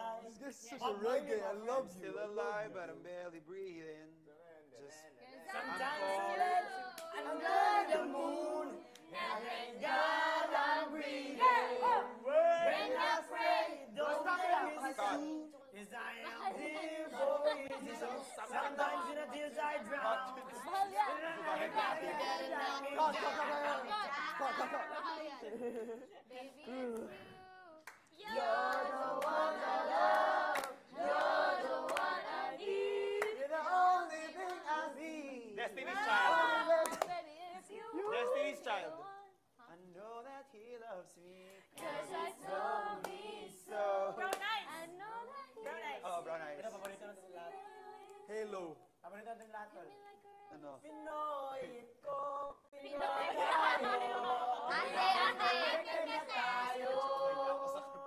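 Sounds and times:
group singing long notes: 5.4 - 15.5, 16.2 - 25.3, 28.1 - 39.4, 41.6 - 45.7, 46.8 - 48.3, 51.1 - 58.0.

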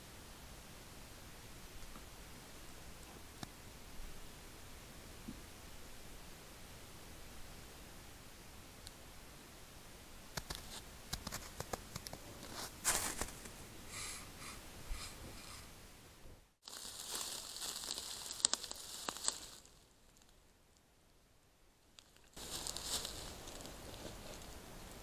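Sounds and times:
fur brushing camera: 12.5 - 15.7.

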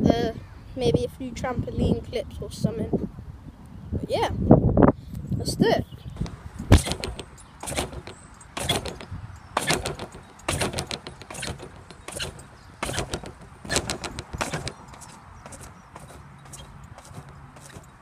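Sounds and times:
trampoline mat hits from bouncing: 6.2 - 18.0.

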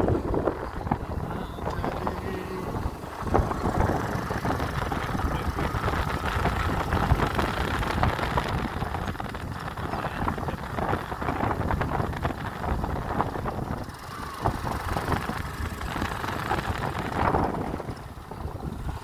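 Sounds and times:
motorcycle ride rumble: 0.0 - 19.0
wind buffeting microphone: 0.0 - 19.0.

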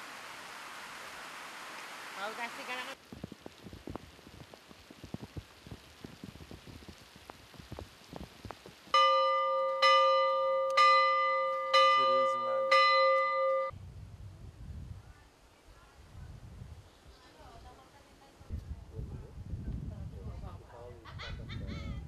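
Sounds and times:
rain falling on water: 0.0 - 13.7
church bell striking: 9.0 - 13.7.

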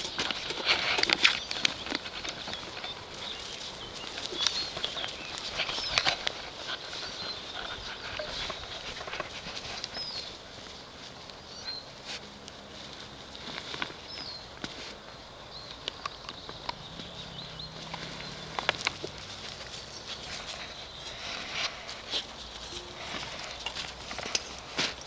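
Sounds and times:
paws scuffing on grass: 0.0 - 25.0
bird chirps: 15.5 - 18.8.

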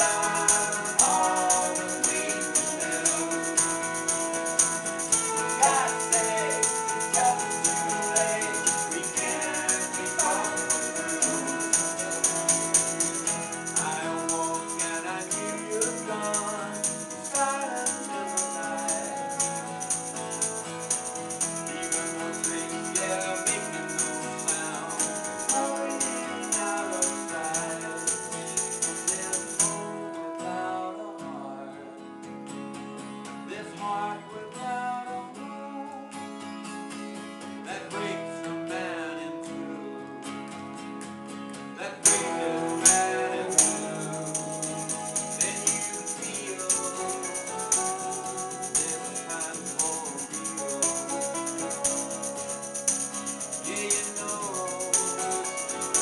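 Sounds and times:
hand shaker rhythm: 0.0 - 29.9, 42.0 - 56.0
man singing: 0.0 - 32.1, 33.4 - 36.3, 37.6 - 40.4, 41.8 - 56.0.

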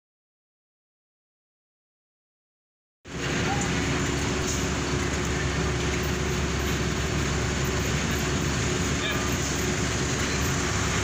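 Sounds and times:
diesel engines idling: 3.1 - 11.0.

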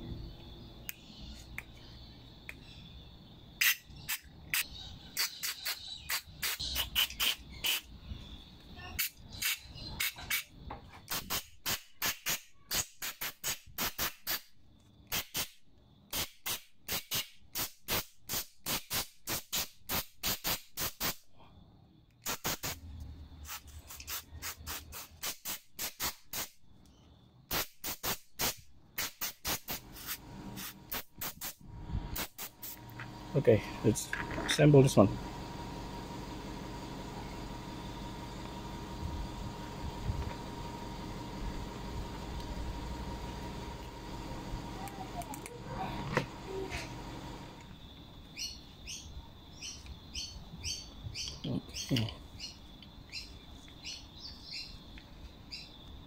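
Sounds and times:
aerosol spray hissing bursts: 5.2 - 7.9, 11.1 - 14.5, 15.1 - 21.2, 22.2 - 22.8, 23.4 - 26.6, 27.5 - 33.0.

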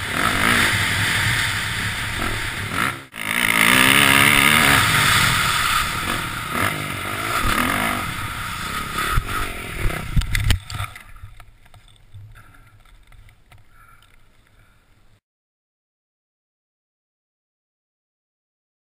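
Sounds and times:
motocross bike engine running: 0.0 - 12.7
wind noise: 3.9 - 14.7.

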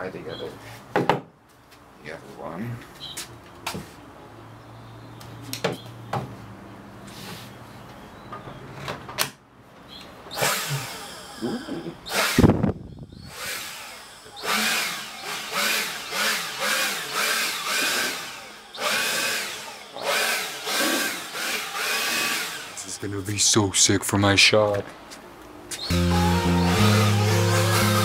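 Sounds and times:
leaf blower motor whirring: 10.3 - 23.4, 25.9 - 28.0.

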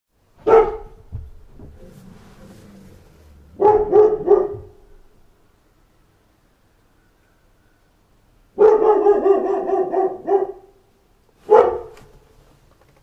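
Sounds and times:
dog barking: 0.4 - 1.1, 3.5 - 5.0, 8.6 - 10.8, 11.4 - 12.1.

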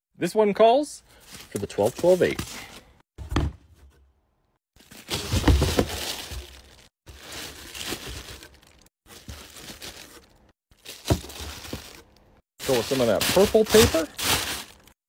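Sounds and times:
thump against cardboard box: 3.2 - 3.6
plastic wrapping crinkling: 4.8 - 15.0.

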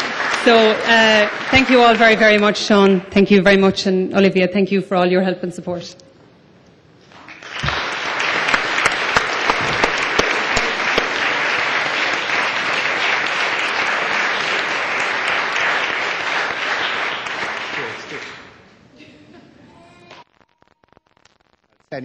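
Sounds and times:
audience applauding: 0.0 - 3.1, 7.1 - 18.6.

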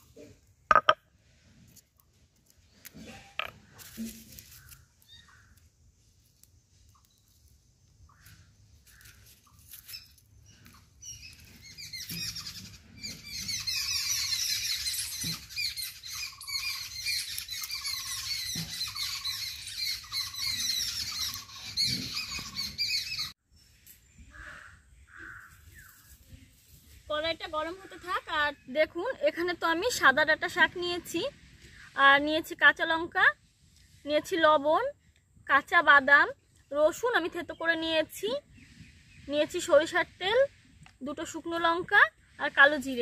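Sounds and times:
many birds chirping: 8.1 - 23.3.

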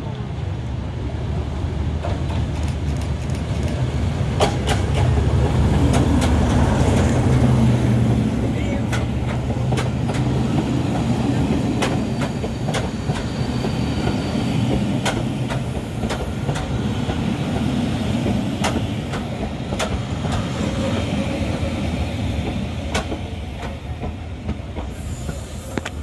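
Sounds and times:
train wheels rumbling on track: 0.0 - 26.0
wheels clicking over rail joints: 8.8 - 10.6.

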